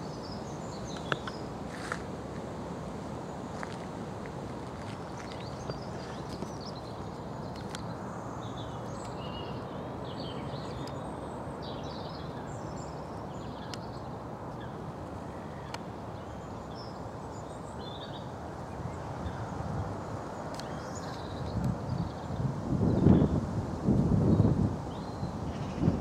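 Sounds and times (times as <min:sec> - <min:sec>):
outdoor background hiss: 0:00.0 - 0:26.0.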